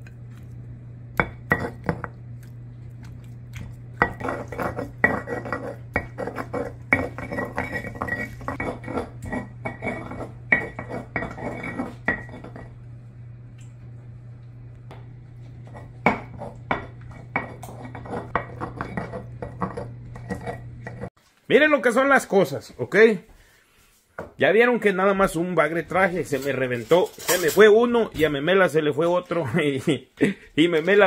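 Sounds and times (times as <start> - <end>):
steady low hum: 0.0 - 21.1
dishes and utensils clinking: 4.0 - 12.8, 26.3 - 27.8.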